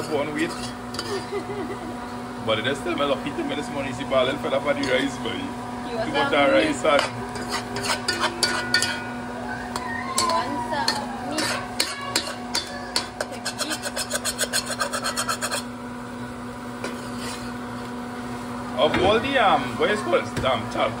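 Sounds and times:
utensil scraping in cooking pot: 0:00.0 - 0:01.4, 0:06.8 - 0:09.2, 0:10.2 - 0:15.9, 0:16.8 - 0:18.3.

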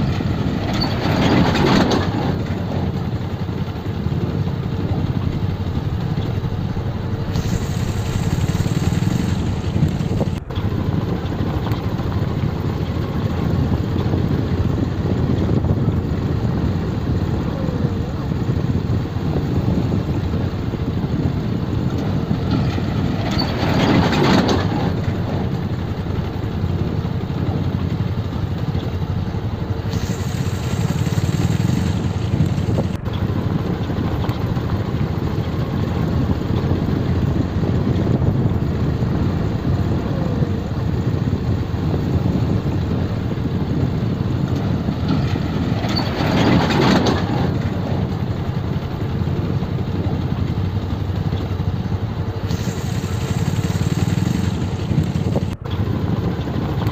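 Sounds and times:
motorcycle engine rumbling: 0:00.0 - 0:56.9.

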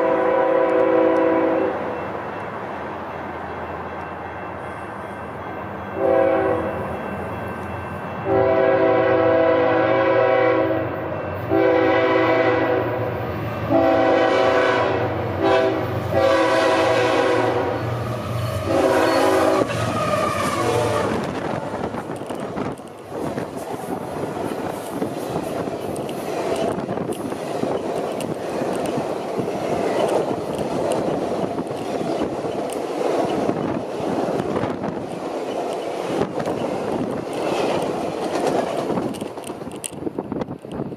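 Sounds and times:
locomotive air horn blasts: 0:00.0 - 0:01.9, 0:06.0 - 0:06.8, 0:08.2 - 0:13.1, 0:13.7 - 0:21.3
passenger cars rumbling and clattering: 0:15.2 - 0:40.9.

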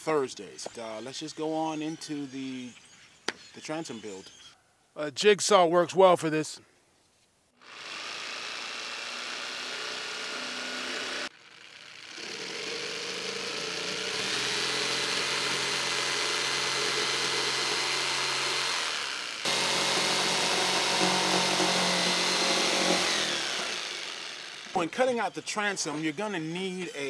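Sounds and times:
jigsaw cutting plywood: 0:07.6 - 0:26.2.

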